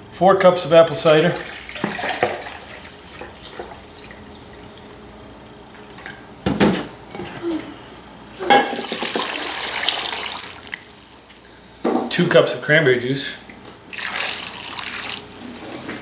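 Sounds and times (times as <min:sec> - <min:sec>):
splashing pour: 0:01.4 - 0:04.6, 0:08.7 - 0:10.9, 0:13.9 - 0:16.0
liquid pouring into a cup: 0:13.9 - 0:16.0.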